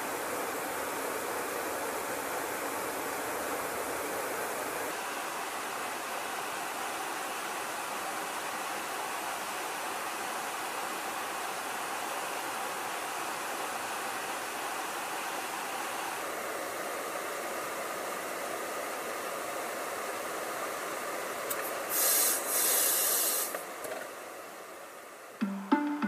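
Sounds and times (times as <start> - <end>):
high hiss: 21.1 - 23.8
music: 25.4 - 26.0.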